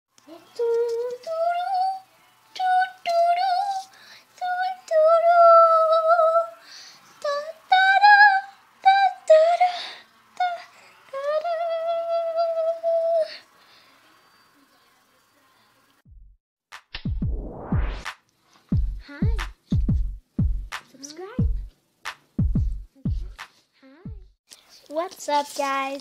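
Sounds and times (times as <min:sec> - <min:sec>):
child singing: 0:00.2 - 0:06.6, 0:07.2 - 0:13.4.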